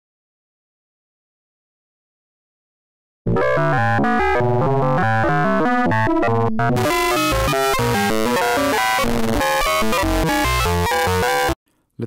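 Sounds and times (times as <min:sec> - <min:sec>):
synthesizer playing buzzy notes: 0:03.3 - 0:11.6.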